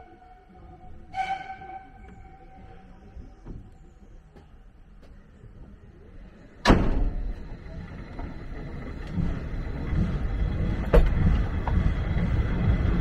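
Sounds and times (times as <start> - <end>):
train carriage rumbling on track: 0.0 - 13.0.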